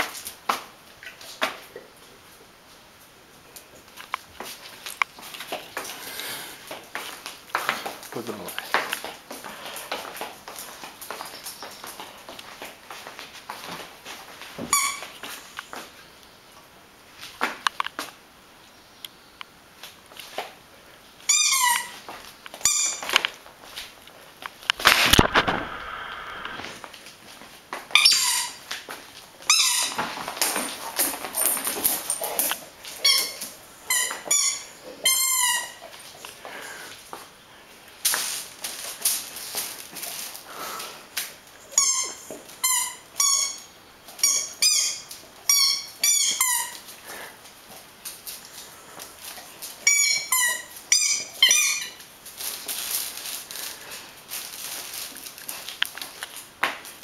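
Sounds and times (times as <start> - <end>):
rubber squeaky ball squeaking: 14.6 - 15.2, 21.3 - 23.2, 27.9 - 28.7, 29.4 - 30.2, 32.9 - 36.0, 41.6 - 46.9, 49.8 - 52.0.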